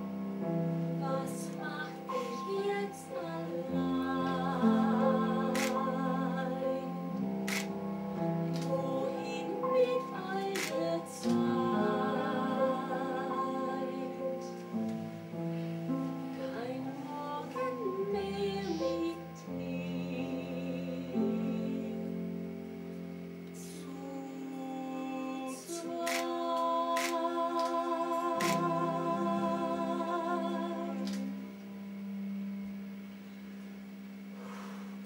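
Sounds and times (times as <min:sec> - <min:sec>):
instrumental accompaniment: 0:00.0 - 0:35.0
person singing with vibrato: 0:01.0 - 0:14.7, 0:16.4 - 0:22.5, 0:23.6 - 0:31.9.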